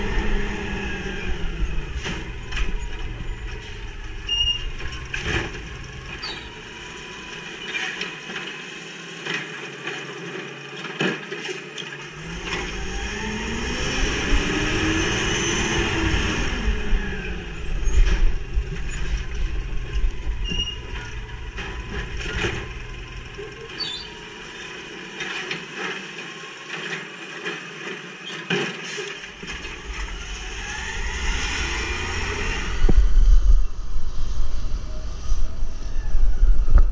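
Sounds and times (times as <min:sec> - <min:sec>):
garbage truck engine revving: 0:00.0 - 0:08.9, 0:12.0 - 0:25.6, 0:29.2 - 0:33.8.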